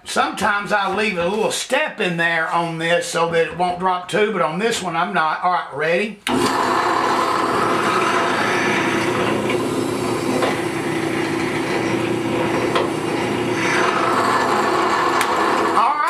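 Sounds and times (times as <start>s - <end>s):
drill press humming: 6.2s - 15.8s.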